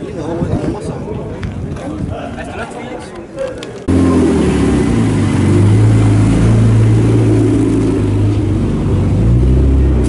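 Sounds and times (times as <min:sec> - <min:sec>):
car engine idling: 0:03.9 - 0:10.0.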